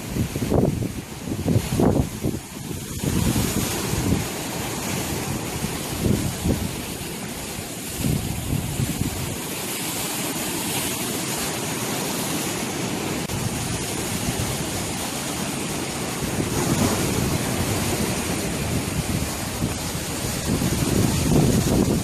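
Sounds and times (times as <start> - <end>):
sea waves breaking on rocks: 0.0 - 22.0.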